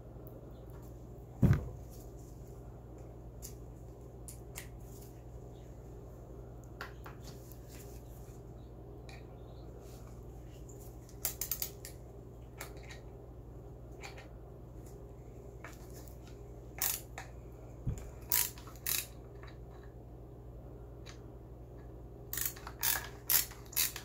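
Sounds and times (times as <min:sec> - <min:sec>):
screwdriver clicking and scraping: 0:16.8 - 0:17.2, 0:18.3 - 0:19.2, 0:22.4 - 0:24.0.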